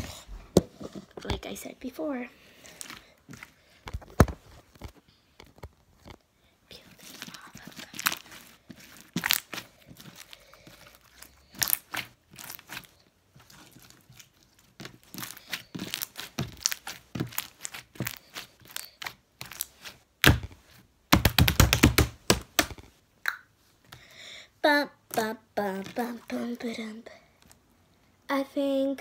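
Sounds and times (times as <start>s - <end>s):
slime squishing and popping: 7.7s - 10.3s, 13.5s - 20.5s, 21.1s - 22.8s.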